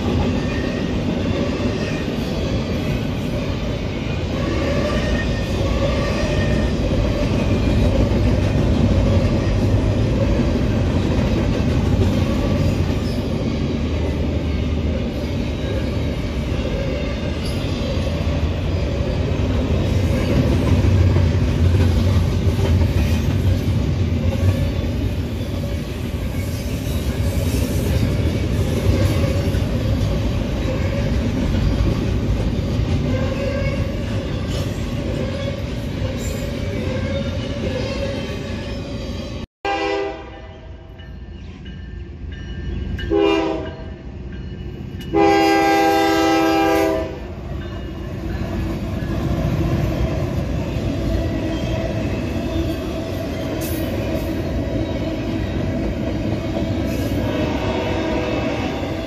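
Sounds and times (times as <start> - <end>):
freight train wheels rumbling: 0.0 - 40.1, 40.7 - 59.0
diesel locomotive horn blasts: 39.6 - 40.9, 43.1 - 44.0, 45.1 - 47.4, 57.2 - 59.0.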